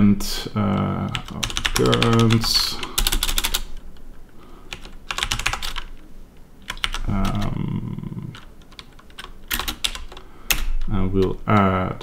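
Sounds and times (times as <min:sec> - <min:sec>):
typing on computer keyboard: 0:00.7 - 0:03.8, 0:04.7 - 0:05.9, 0:06.7 - 0:07.5, 0:08.3 - 0:11.7
low hum of voice: 0:07.0 - 0:08.4.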